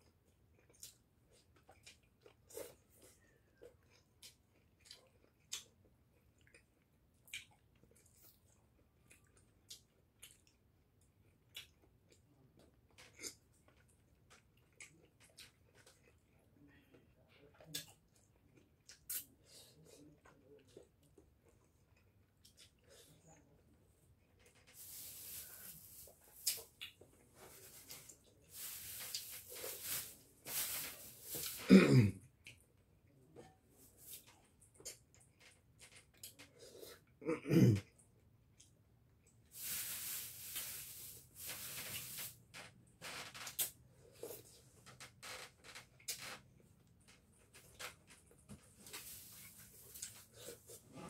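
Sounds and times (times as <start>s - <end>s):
man chewing and lip-smacking: 0.0s - 24.6s, 32.2s - 37.2s, 37.8s - 39.5s.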